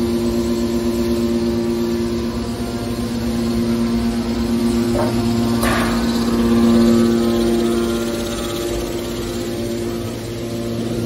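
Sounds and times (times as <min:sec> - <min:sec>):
hydraulic pump motor humming: 0:00.0 - 0:11.0.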